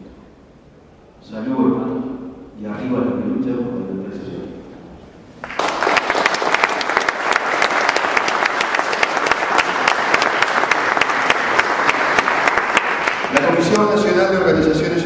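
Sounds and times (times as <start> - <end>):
audience applauding: 5.4 - 14.2.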